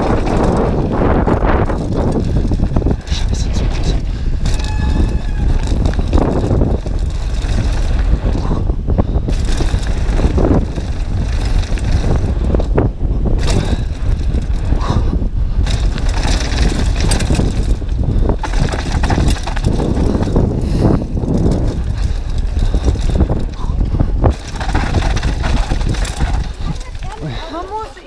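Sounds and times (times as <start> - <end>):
bike rattling over bumps: 0.0 - 28.0
wind rushing against microphone: 0.0 - 28.0
tyres crunching over gravel: 15.6 - 20.6, 24.2 - 28.0.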